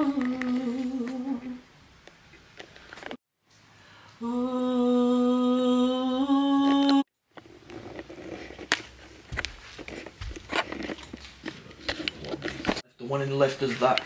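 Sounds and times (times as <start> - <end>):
person humming steady note: 0.0 - 1.6, 4.2 - 7.0.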